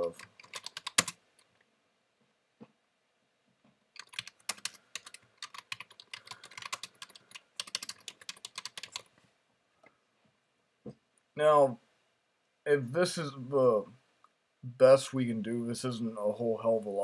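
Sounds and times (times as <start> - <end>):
computer keyboard typing: 0.0 - 1.2, 4.0 - 9.1.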